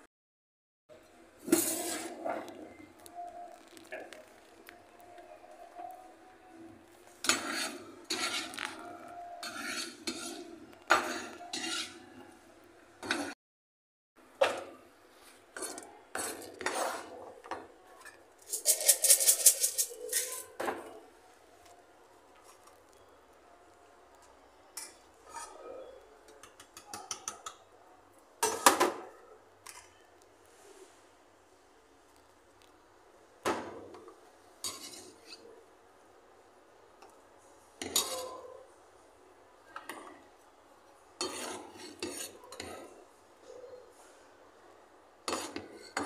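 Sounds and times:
metal scoop scraping steel tray: 0:07.2 - 0:08.8, 0:09.4 - 0:12.0, 0:18.4 - 0:20.6
kitchen utensils clinking: 0:18.4 - 0:20.6.

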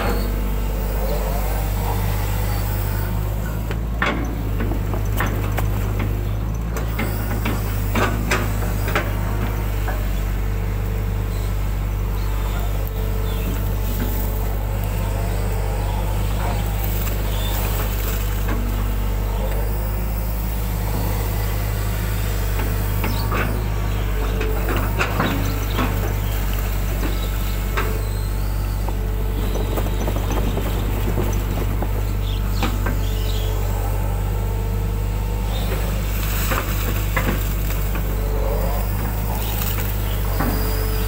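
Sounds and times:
excavator diesel engine running: 0:00.0 - 0:41.0.

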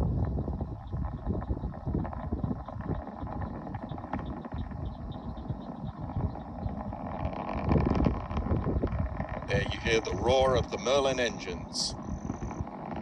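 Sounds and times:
distant rocket engines rumbling: 0:00.0 - 0:13.0.

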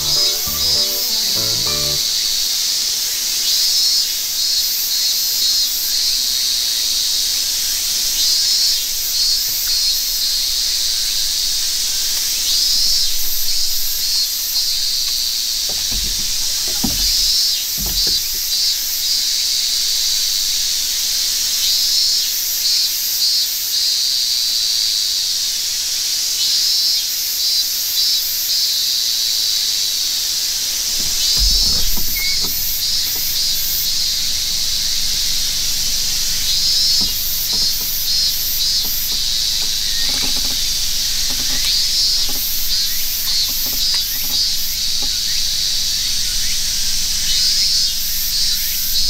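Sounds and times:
cicadas buzzing: 0:08.8 - 0:21.1, 0:30.4 - 0:49.0
dull low thumps: 0:30.9 - 0:45.6.

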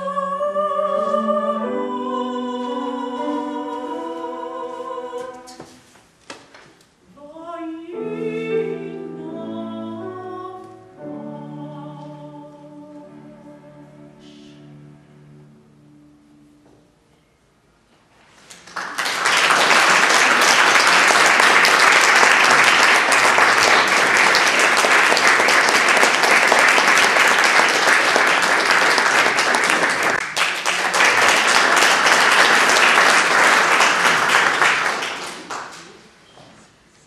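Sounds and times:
audience applauding: 0:18.4 - 0:36.2.

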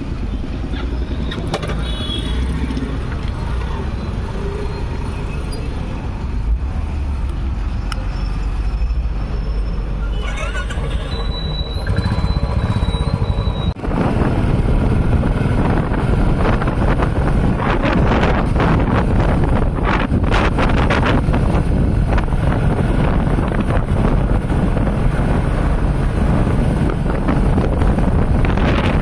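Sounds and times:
wind rushing over microphone: 0:13.7 - 0:29.0.

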